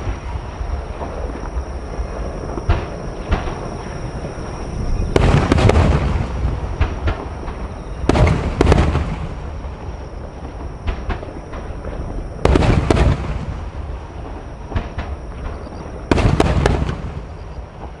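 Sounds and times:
steady low rumble: 0.0s - 18.0s
firework shells bursting: 5.1s - 9.5s.

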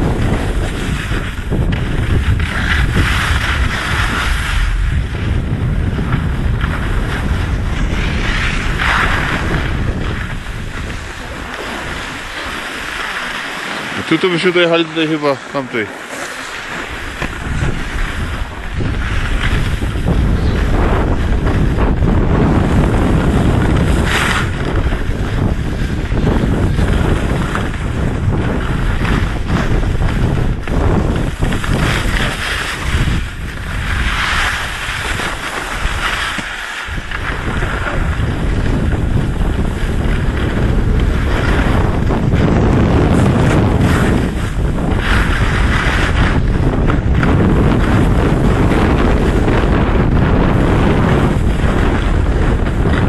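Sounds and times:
wind buffeting microphone: 0.0s - 53.0s
hiss of sliding on snow: 10.3s - 18.6s.

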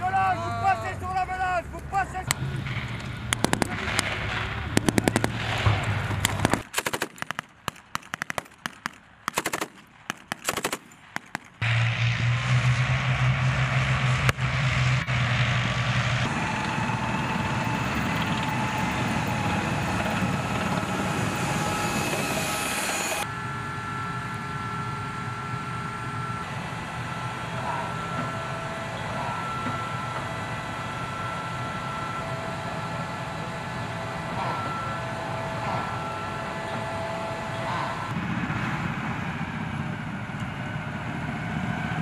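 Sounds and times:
tank engines droning: 0.0s - 42.0s
automatic gunfire: 3.4s - 11.6s.

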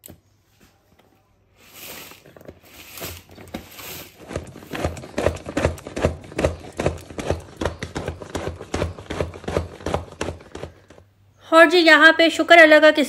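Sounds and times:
manual food chopper clacking: 2.5s - 11.0s.

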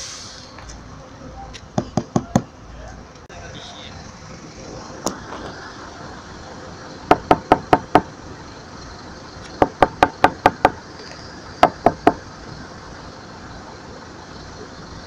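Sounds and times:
knuckles knocking on car window: 1.8s - 2.5s, 7.1s - 8.1s, 9.6s - 10.8s, 11.6s - 12.2s.

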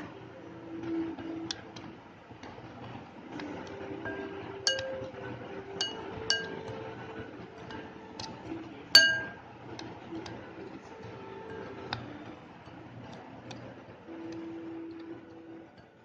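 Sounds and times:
spoon stirring dry powder: 3.6s - 16.0s
spoon clinking on glass: 4.7s - 5.1s, 5.8s - 6.8s, 9.0s - 9.4s.

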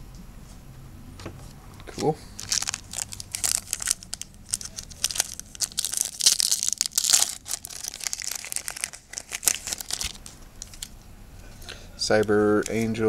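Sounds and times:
foil wrapper tearing and crinkling: 2.4s - 10.9s.

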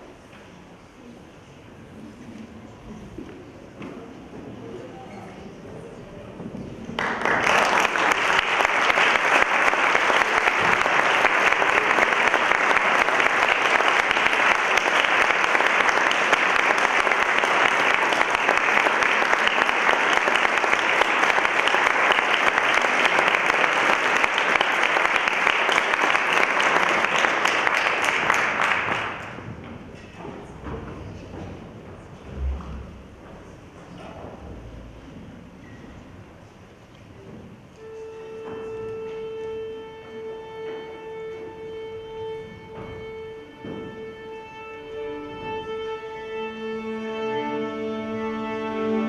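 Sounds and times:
audience applauding: 6.9s - 29.5s.

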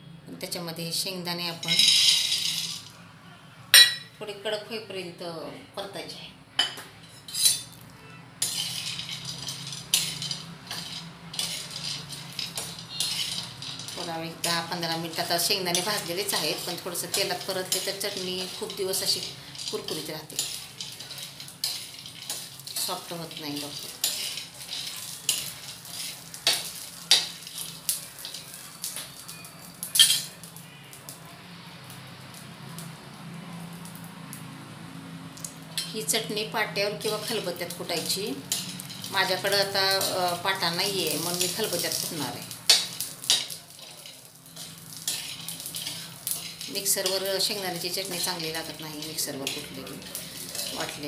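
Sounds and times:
peanuts rattling: 1.6s - 2.9s, 8.4s - 30.4s, 37.0s - 51.0s
metal spatula scraping on iron: 7.0s - 30.4s, 37.0s - 51.0s.

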